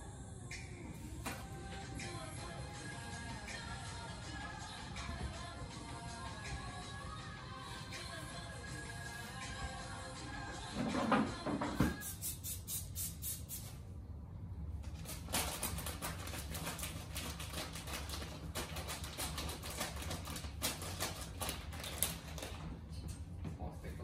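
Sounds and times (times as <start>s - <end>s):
low steady hum: 0.0s - 24.0s.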